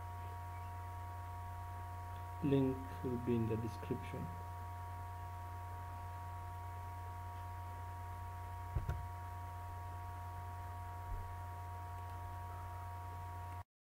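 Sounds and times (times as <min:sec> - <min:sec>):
electrical hum: 0:00.0 - 0:13.6
soft knock: 0:08.8 - 0:09.1.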